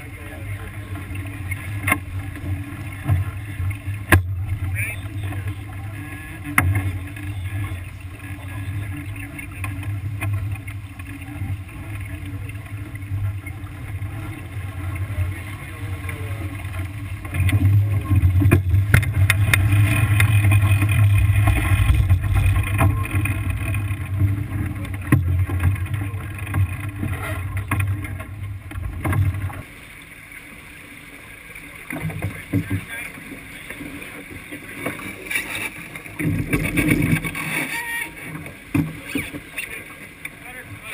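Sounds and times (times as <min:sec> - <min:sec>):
water rushing along hull: 0:00.0 - 0:40.9.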